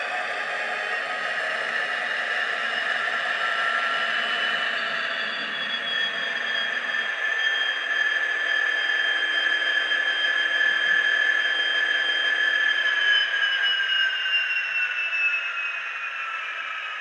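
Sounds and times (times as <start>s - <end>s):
high-pitched whine over hiss: 0.0s - 17.0s.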